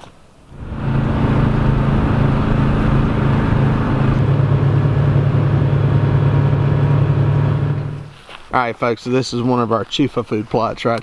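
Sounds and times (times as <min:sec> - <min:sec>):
wind and road noise: 0:00.0 - 0:11.0
utility vehicle engine droning: 0:00.4 - 0:08.2.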